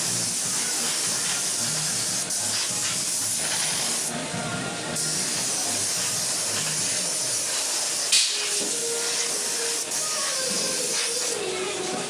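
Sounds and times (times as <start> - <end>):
welding arc hissing: 0.0 - 4.2, 5.0 - 12.0
welding arc snap: 8.1 - 8.5.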